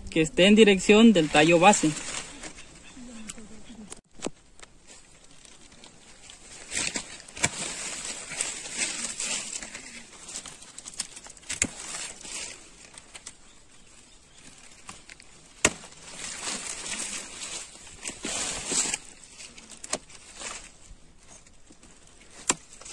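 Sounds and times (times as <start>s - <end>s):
leaves rustling: 0.0s - 22.9s
pruning shears snipping: 6.6s - 13.4s, 14.6s - 20.6s, 22.2s - 22.9s.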